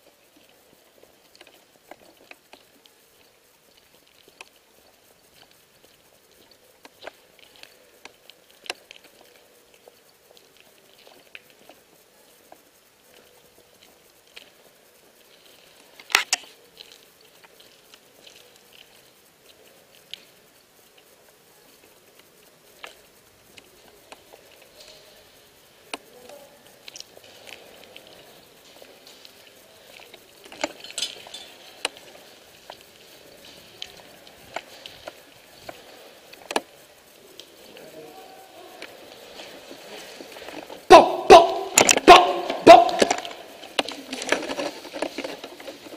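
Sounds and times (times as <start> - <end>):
footsteps crunching over rubble: 38.7 - 45.9
sharp clicks and ticks: 41.4 - 45.9.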